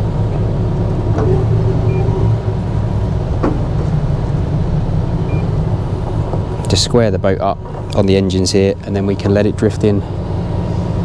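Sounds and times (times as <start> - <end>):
diesel engines rumbling: 0.0 - 11.0.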